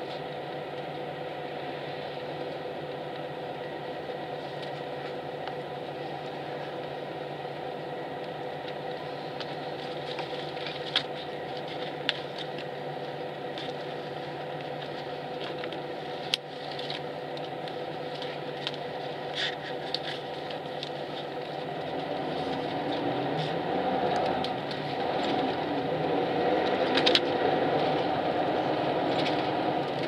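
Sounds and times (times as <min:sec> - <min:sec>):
coach engine idling hum: 0:00.0 - 0:30.0.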